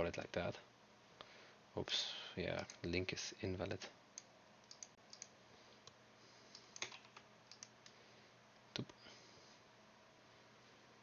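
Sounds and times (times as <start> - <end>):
computer keyboard and mouse clicks: 4.2 - 5.3, 6.5 - 8.0.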